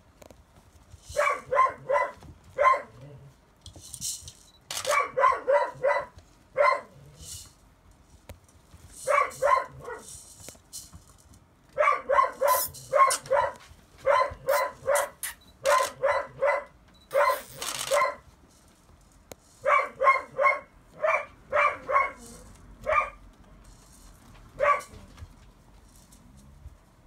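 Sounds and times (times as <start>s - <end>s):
puppies yapping: 11.8s - 18.2s.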